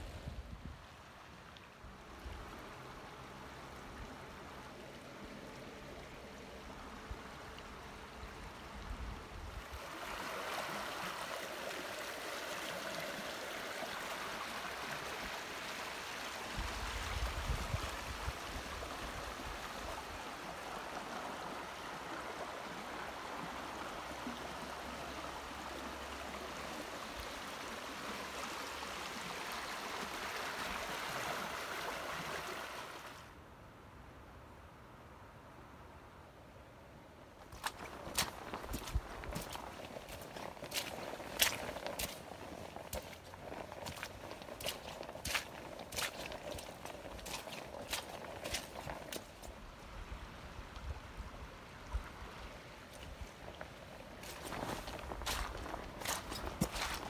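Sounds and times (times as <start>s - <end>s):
river current rushing: 9.7s - 33.3s, 37.5s - 50.5s, 51.6s - 57.0s.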